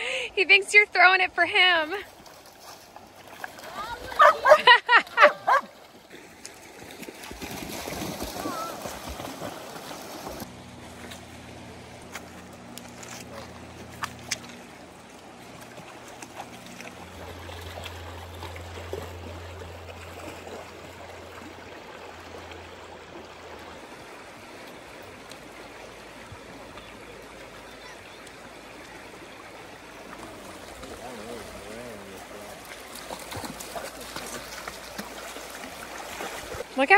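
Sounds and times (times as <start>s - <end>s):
stream water running: 0.0s - 36.9s
low steady hum: 10.4s - 33.5s.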